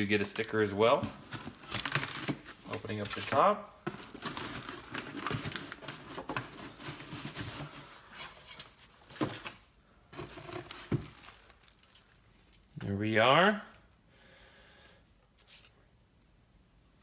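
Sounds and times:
plastic bag crinkling: 0:01.2 - 0:03.1, 0:03.9 - 0:09.6, 0:10.2 - 0:12.8.

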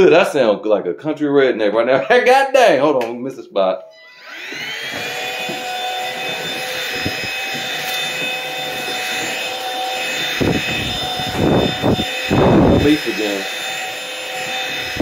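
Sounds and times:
stick vacuum whining: 0:03.9 - 0:15.0.

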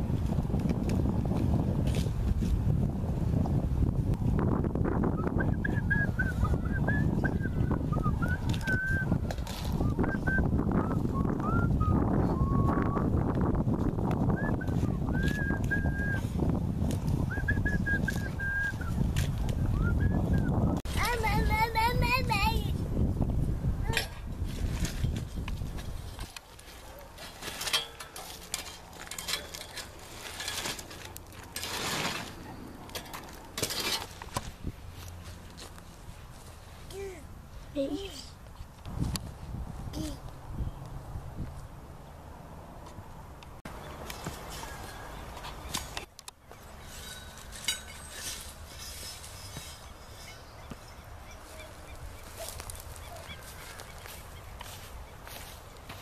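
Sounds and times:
metal rake scraping charcoal: 0:23.9 - 0:35.8, 0:44.0 - 0:50.6
coals clinking: 0:24.8 - 0:34.4, 0:44.0 - 0:50.5
faint bird calls: 0:49.4 - 0:55.5.

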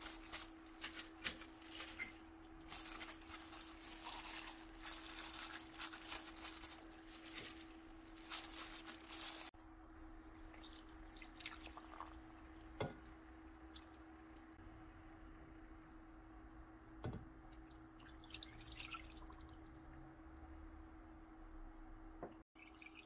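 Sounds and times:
plastic glove rustling: 0:00.0 - 0:09.6.

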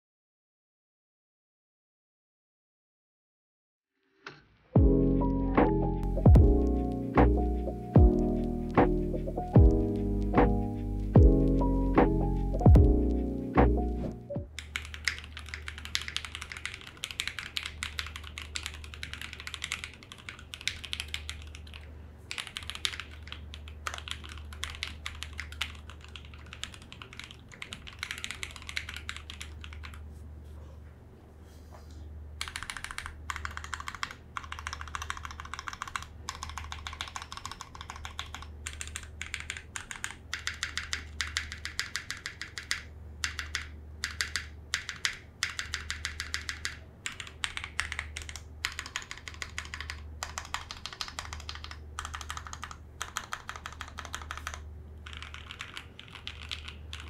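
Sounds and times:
fast typing on mechanical keyboard: 0:14.6 - 0:30.0, 0:32.4 - 0:57.0.

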